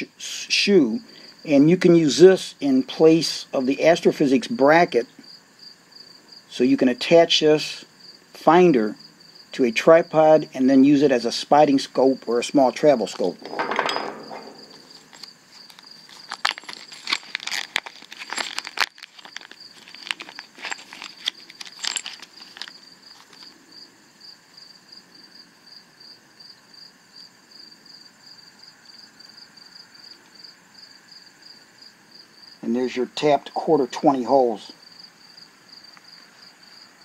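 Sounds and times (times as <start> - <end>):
cricket chirping: 0.8 - 37.0
plastic bag crinkling: 13.0 - 23.5.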